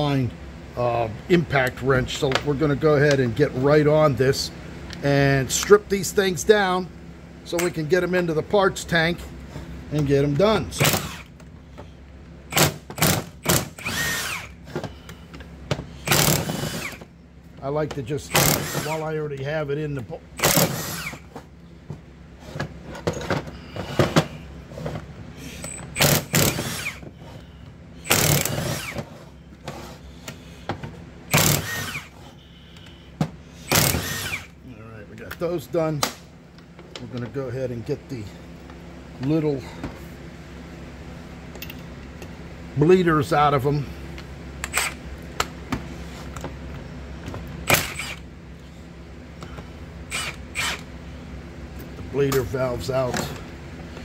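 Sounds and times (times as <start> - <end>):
impact wrench hammering: 12.5 - 14.5, 15.7 - 17.1, 18.3 - 19.0, 20.4 - 21.2, 25.7 - 27.1, 28.0 - 29.1, 31.3 - 32.1, 33.6 - 34.5.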